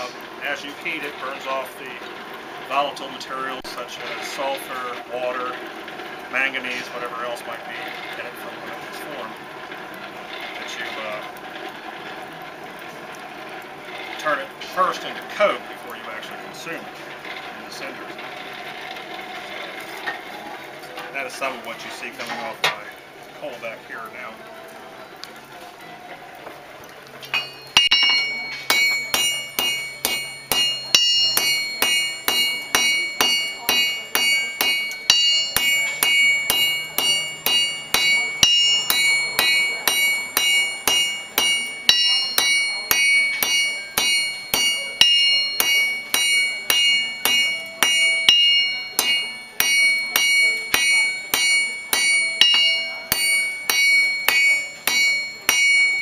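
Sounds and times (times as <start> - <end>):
hammer striking metal on anvil: 27.3 - 56.0.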